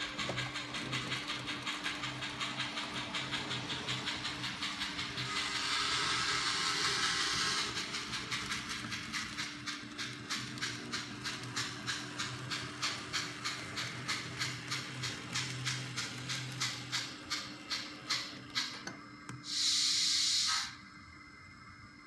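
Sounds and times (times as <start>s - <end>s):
model train steam chuffs: 0.0s - 21.7s
loud steam hiss: 4.0s - 8.2s, 19.4s - 20.8s.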